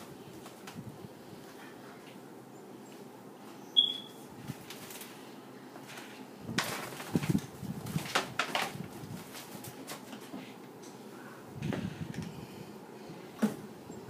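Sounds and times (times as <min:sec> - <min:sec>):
short high squeak: 0:03.8 - 0:04.2
rustling and scuffling: 0:04.2 - 0:10.7.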